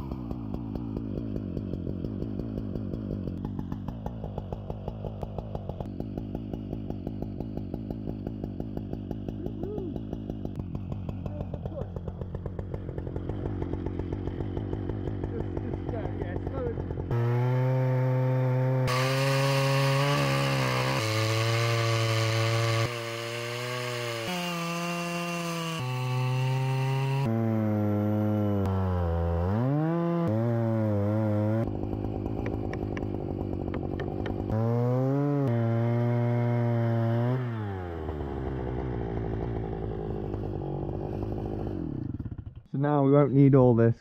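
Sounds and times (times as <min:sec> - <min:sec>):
chainsaw cutting through log: 0:00.0 - 0:42.7.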